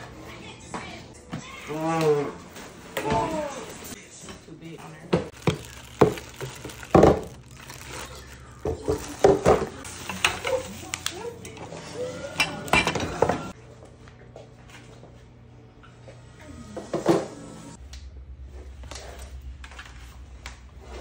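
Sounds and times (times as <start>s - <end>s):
bubble wrap rustling: 5.3s - 11.4s
plastic parts clattering on countertop: 5.4s - 10.9s.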